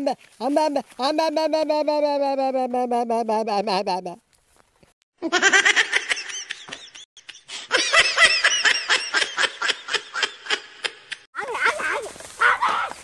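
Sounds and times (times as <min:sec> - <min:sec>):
high-pitched laughter: 0:05.2 - 0:11.2.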